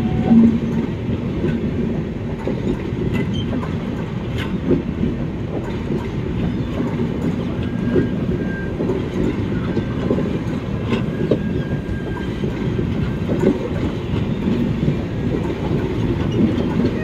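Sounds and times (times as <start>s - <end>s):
train wheels rumbling on rail: 0.0s - 17.0s
clickety-clack knocks: 0.2s - 17.0s.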